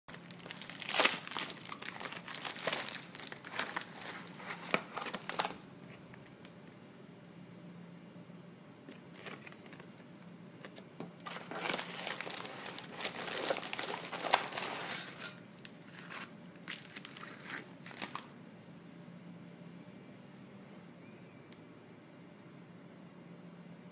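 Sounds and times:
plastic mailer crinkling: 0:00.1 - 0:05.6, 0:08.9 - 0:10.0, 0:10.6 - 0:18.3.

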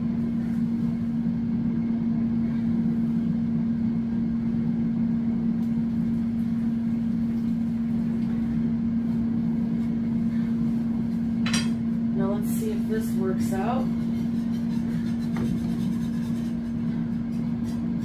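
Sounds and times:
fan motor humming: 0:00.0 - 0:18.0.

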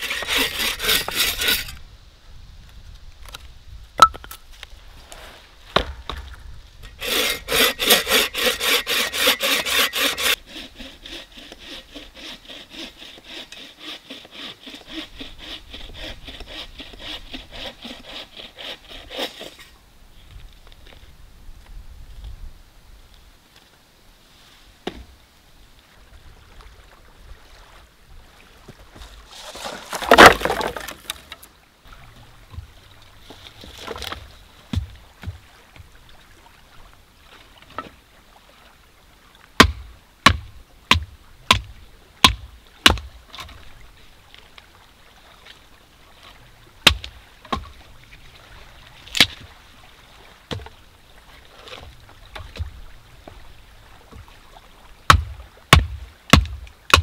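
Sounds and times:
hatchet chopping firewood: 0:00.0 - 0:01.8, 0:04.0 - 0:04.4, 0:05.8 - 0:06.3, 0:06.9 - 0:10.4, 0:29.5 - 0:31.4, 0:33.9 - 0:35.4, 0:39.6 - 0:43.1, 0:46.9 - 0:47.6, 0:55.1 - 0:57.0.

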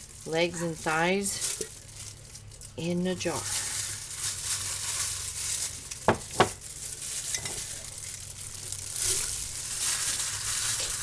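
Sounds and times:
gloved hand rummaging in chicken: 0:03.5 - 0:06.0.

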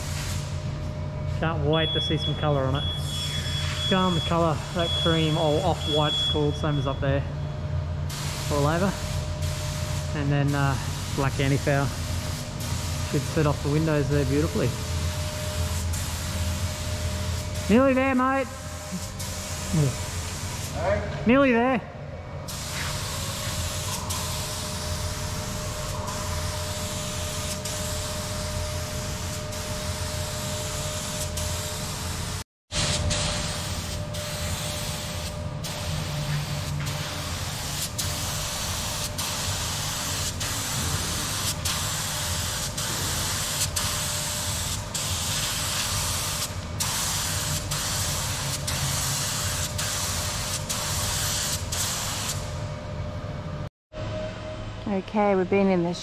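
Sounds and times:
spray gun hissing: 0:00.0 - 0:00.5, 0:08.1 - 0:20.9, 0:22.5 - 0:52.5.

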